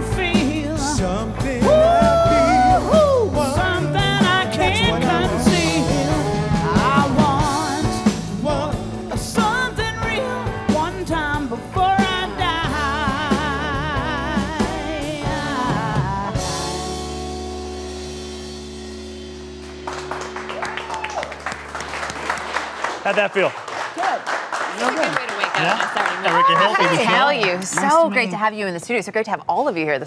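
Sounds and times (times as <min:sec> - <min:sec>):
woman singing with vibrato: 0:00.0 - 0:17.3
live rock band playing: 0:00.0 - 0:23.1.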